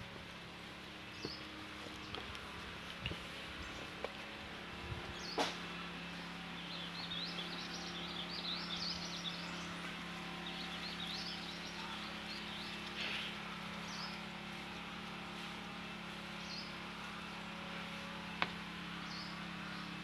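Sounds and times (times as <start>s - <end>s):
steady low hum: 0.0s - 20.0s
birds chirping: 0.8s - 2.6s, 3.2s - 4.4s, 5.0s - 20.0s.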